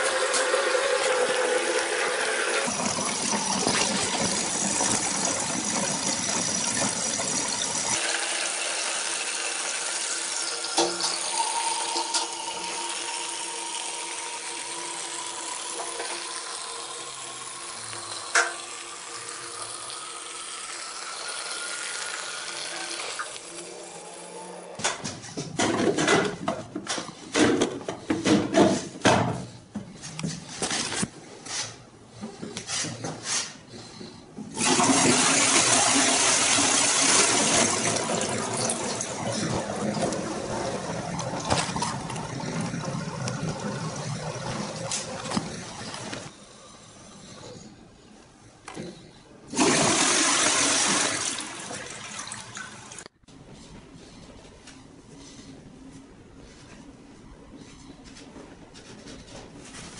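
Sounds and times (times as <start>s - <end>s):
toilet cistern refilling: 0.0s - 24.7s, 34.5s - 46.3s, 49.5s - 53.1s.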